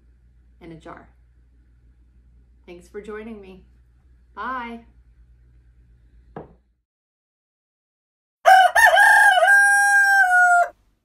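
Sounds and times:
rooster crowing: 8.4s - 10.8s.

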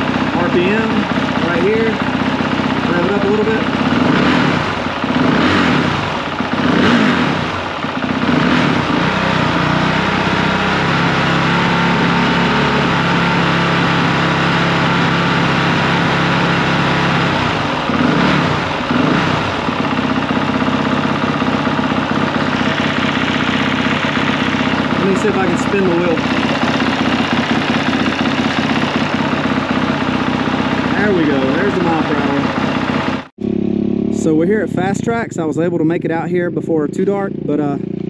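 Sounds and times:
dirt bike engine revving: 0.0s - 38.0s.

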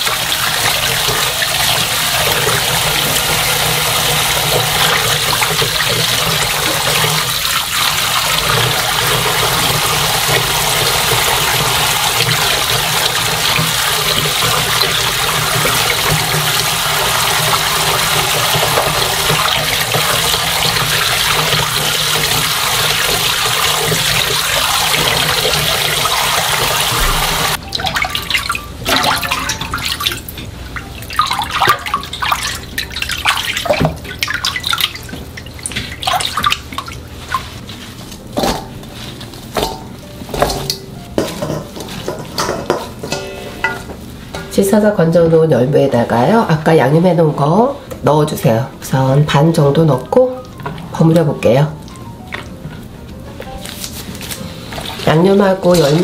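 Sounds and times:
tap running into bowl of water: 0.0s - 30.2s, 31.2s - 36.9s
water splashes and drips: 0.0s - 38.7s, 53.6s - 56.0s.

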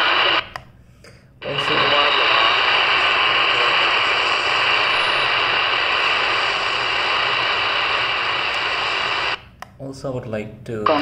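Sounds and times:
radio static hiss: 0.0s - 0.5s, 1.4s - 9.6s.

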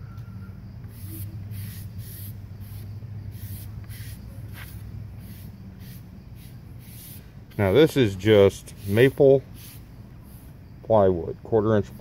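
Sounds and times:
steady low hum: 0.0s - 12.0s
foam brush rubbing on wood: 1.0s - 10.6s.

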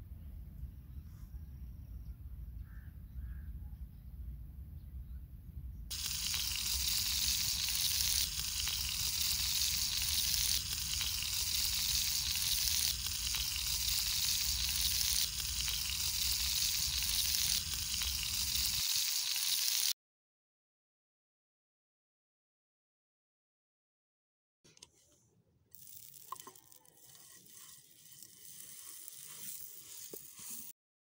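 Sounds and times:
oil sizzling in a pan: 5.9s - 20.0s, 26.0s - 30.7s.

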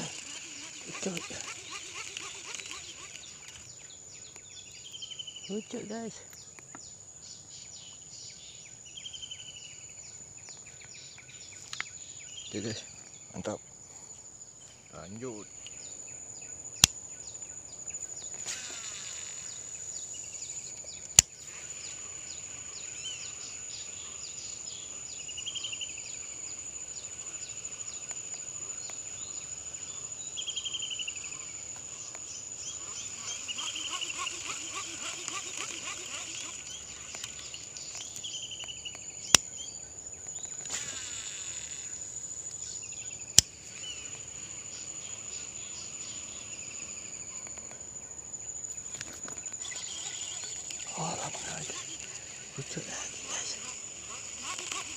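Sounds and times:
high-pitched insect drone: 0.0s - 6.2s, 14.8s - 54.9s
trilled chirping calls: 0.0s - 6.2s, 30.4s - 46.6s, 49.4s - 54.9s.

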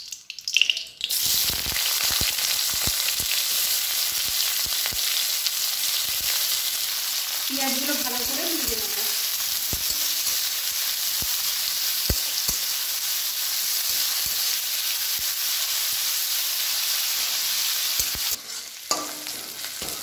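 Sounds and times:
onions sizzling in oil: 1.0s - 20.0s
metal spatula scraping pan: 18.0s - 20.0s.

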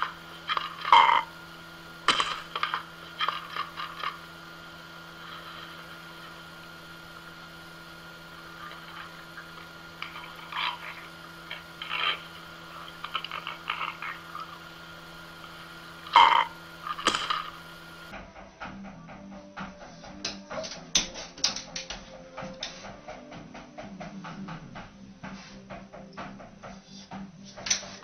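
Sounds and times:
faint steady hum: 0.0s - 18.2s
animals crunching dry food: 8.6s - 14.6s.

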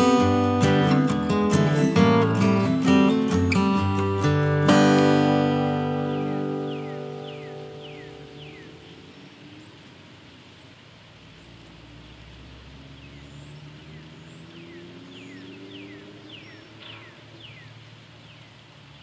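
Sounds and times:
bird chirping: 0.0s - 19.0s
distant vehicle engine drone: 5.6s - 19.0s.

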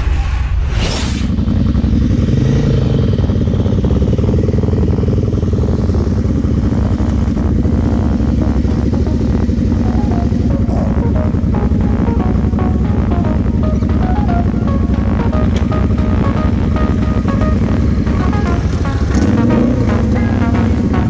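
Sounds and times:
short swoosh: 0.0s - 1.4s
quad engine idling: 1.3s - 21.0s.

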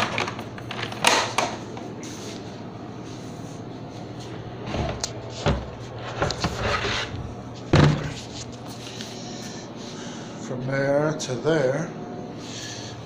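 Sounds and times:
plastic lid knocks and thuds: 7.7s - 8.1s.

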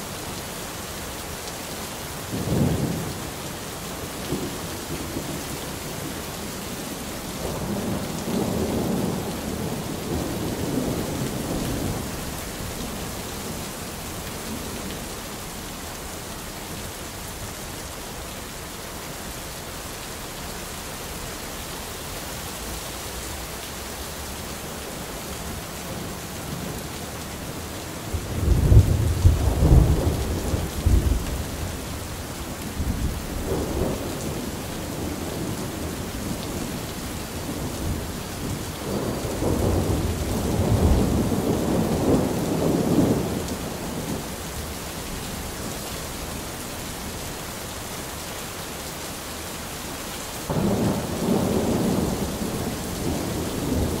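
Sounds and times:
steady rain: 0.0s - 54.0s
rolling thunder: 28.1s - 44.2s, 50.5s - 54.0s.

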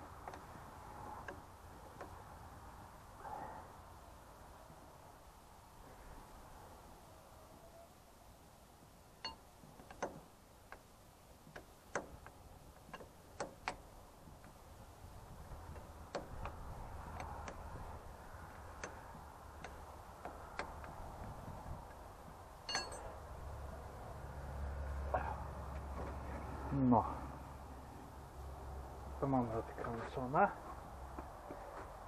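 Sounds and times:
spanner clicking on metal bolts: 9.2s - 14.6s, 15.5s - 21.2s, 22.6s - 23.2s.

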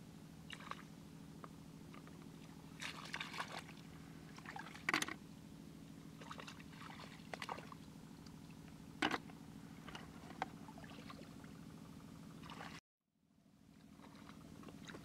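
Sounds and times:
steady low hum: 0.0s - 15.0s
hands splashing in shallow water: 2.8s - 3.8s.

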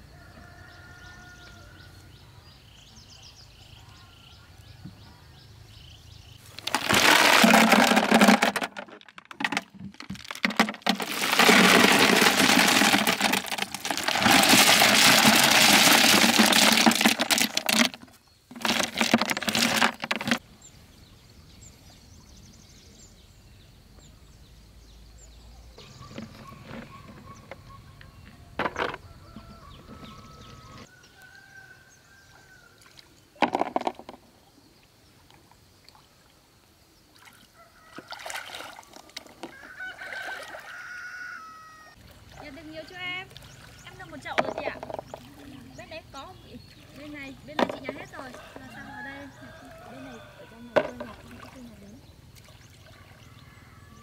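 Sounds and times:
snail shells clattering: 6.5s - 20.4s, 44.3s - 45.2s, 47.5s - 48.2s.

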